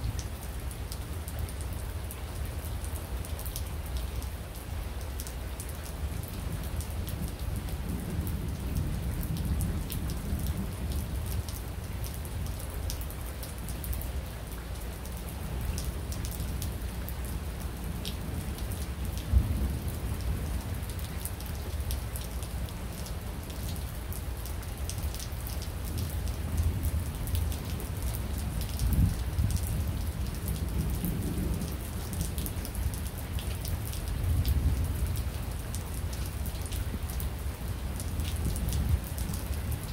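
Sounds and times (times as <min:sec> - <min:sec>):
steady rain falling: 0:00.0 - 0:39.9
low rolling thunder: 0:19.1 - 0:20.9, 0:26.0 - 0:33.0.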